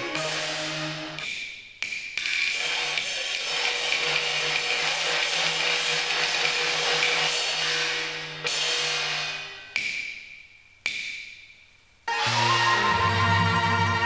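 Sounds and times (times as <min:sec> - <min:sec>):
gongs and cymbals striking: 0:00.0 - 0:01.4.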